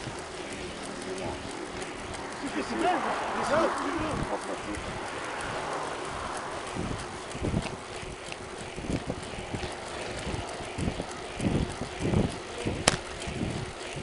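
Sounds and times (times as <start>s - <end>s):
bicycle knocks and rattles: 0.0s - 14.0s
wind and road noise: 0.0s - 14.0s
sharp click: 12.8s - 13.1s.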